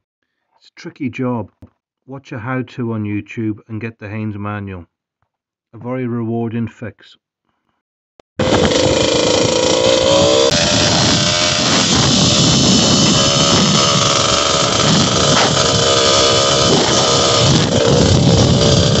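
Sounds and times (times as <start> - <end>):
two-stroke motorcycle engine revving: 8.4 - 19.0.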